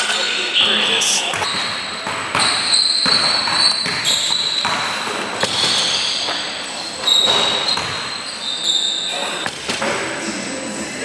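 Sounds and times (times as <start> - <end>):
gym background noise: 0.0 - 11.0
basketballs bouncing on hardwood: 1.3 - 6.1, 7.1 - 8.1.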